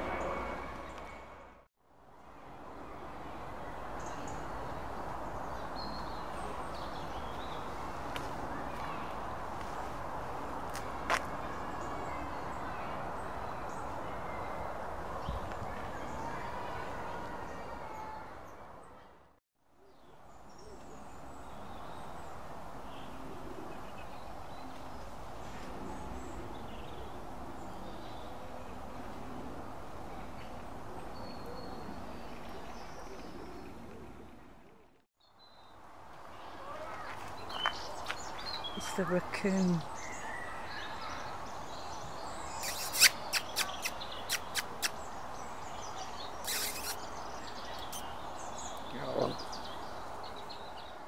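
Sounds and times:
outdoor background noise: 0.0s - 51.0s
low bird calls: 42.4s - 45.1s, 45.8s - 50.0s
hissing rustle: 42.6s - 45.1s, 46.4s - 48.1s
faint high chirps: 46.4s - 47.0s.

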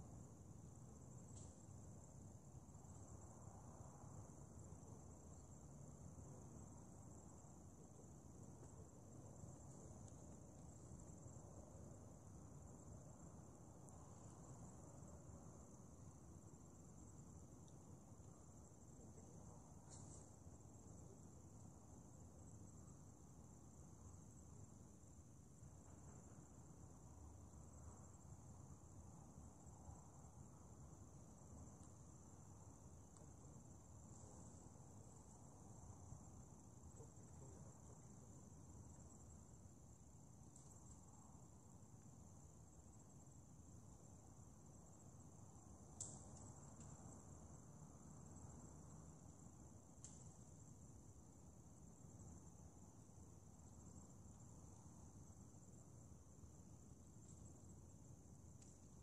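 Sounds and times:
high-pitched insect trill: 0.0s - 59.0s
small click: 19.8s - 20.3s, 46.0s - 47.0s.

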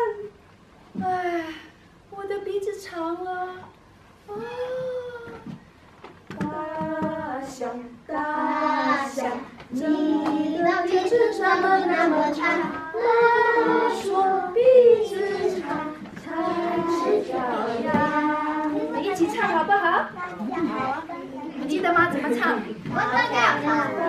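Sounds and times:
group singing with children: 6.3s - 20.1s, 21.7s - 24.0s.

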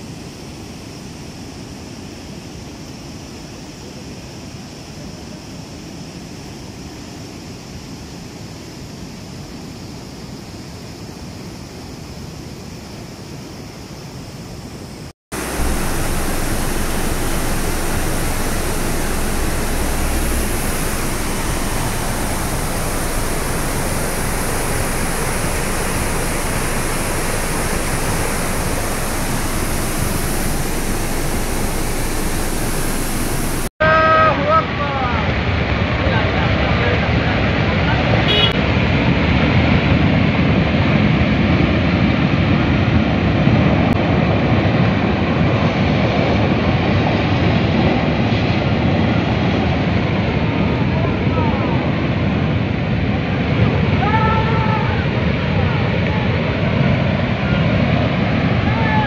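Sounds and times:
river water rushing: 15.4s - 33.7s.

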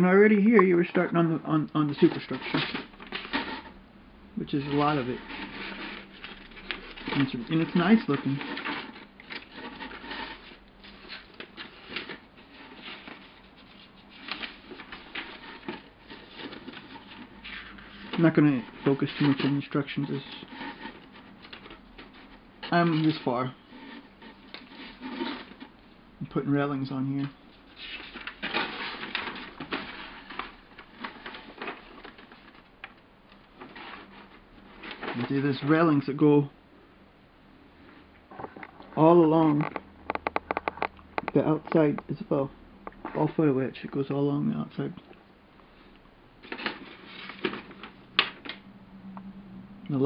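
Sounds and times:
paper pages rustling: 1.8s - 3.8s, 4.5s - 36.0s, 46.4s - 48.6s
page flaps: 4.6s - 25.7s, 33.6s - 35.8s, 46.4s - 48.6s.

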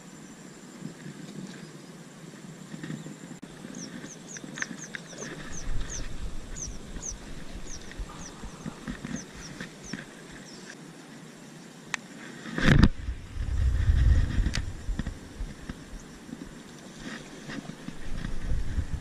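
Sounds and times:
low rumble: 12.9s - 16.2s.

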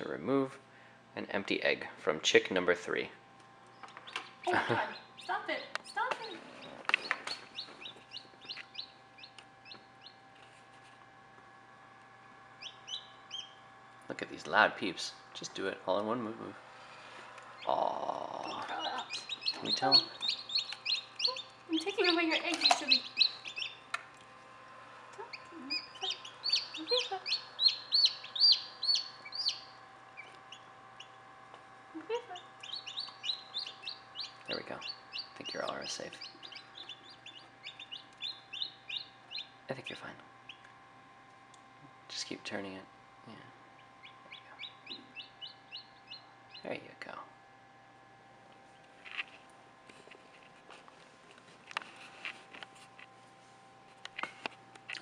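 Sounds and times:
faint steady hum: 0.0s - 55.0s
chicks peeping: 3.7s - 10.2s, 12.6s - 13.7s, 16.9s - 24.0s, 25.2s - 31.2s, 32.0s - 39.9s, 40.5s - 40.7s, 43.8s - 46.8s.

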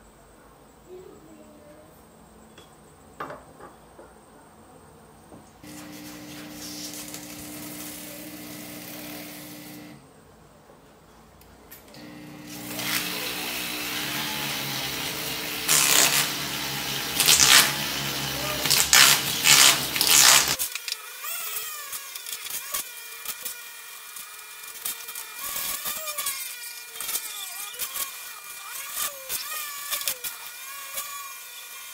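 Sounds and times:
rotary tool humming: 5.6s - 10.0s, 11.9s - 31.9s
bit grinding metal spoon: 12.1s - 20.8s.

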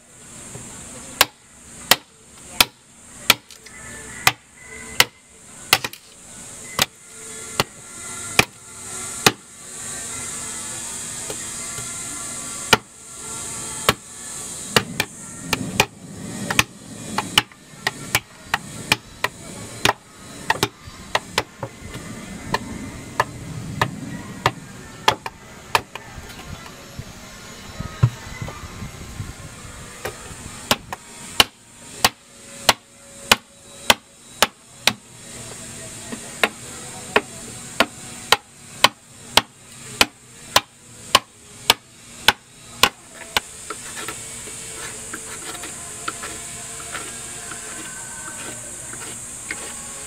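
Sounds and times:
knife chopping wood: 1.2s - 3.6s, 4.2s - 4.4s, 5.0s - 6.1s, 8.4s - 8.6s, 9.2s - 9.4s, 12.7s - 12.9s, 13.9s - 14.1s, 16.5s - 21.5s, 23.2s - 26.0s, 30.7s - 35.0s, 37.2s - 44.2s.

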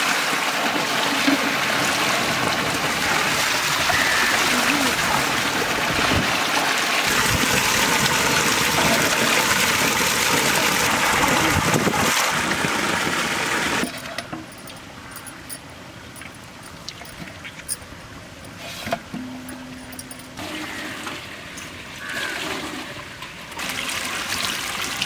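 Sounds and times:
water gushing from pipe: 0.0s - 14.1s, 20.4s - 25.0s
water splashing in bowl: 0.0s - 14.1s.

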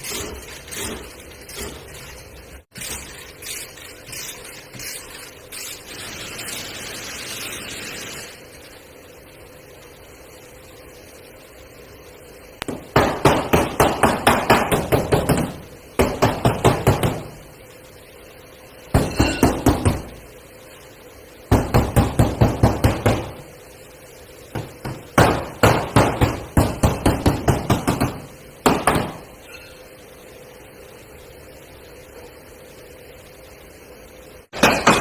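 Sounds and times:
hammer striking metal panel: 34.5s - 35.0s.

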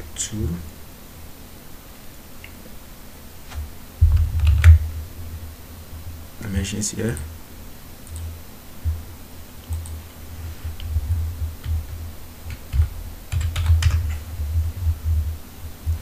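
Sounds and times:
computer keyboard typing: 4.2s - 4.8s, 8.0s - 8.3s, 9.6s - 10.0s, 10.8s - 15.3s.

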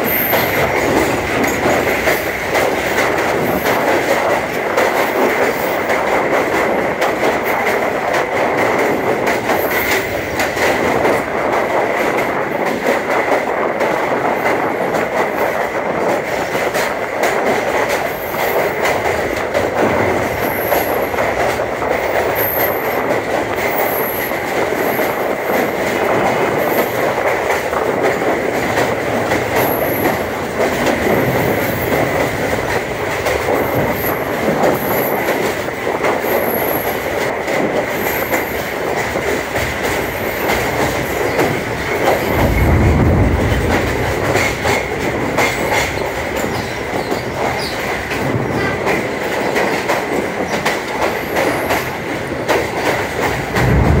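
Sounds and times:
train wheels rumbling and clattering: 0.0s - 54.0s
deep low rumble: 42.2s - 45.2s, 53.6s - 54.0s.

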